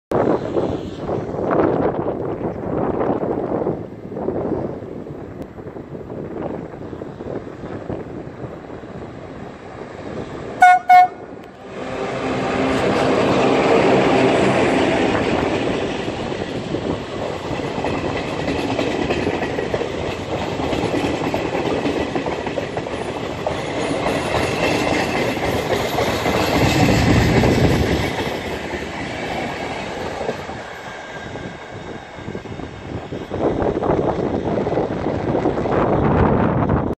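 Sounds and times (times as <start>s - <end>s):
train wheels rumbling on rails: 0.1s - 36.9s
locomotive horn blasts: 10.6s - 12.7s.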